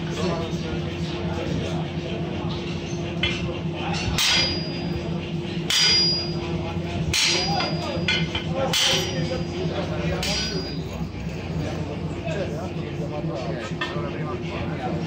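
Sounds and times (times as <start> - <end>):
steady low hum: 0.0 - 15.0
hammer striking metal tool: 3.2 - 6.5, 7.1 - 11.2.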